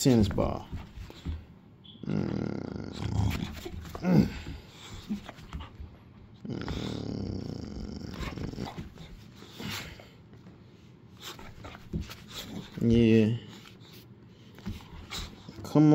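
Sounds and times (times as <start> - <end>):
dog growling: 2.0 - 5.8, 6.4 - 10.0.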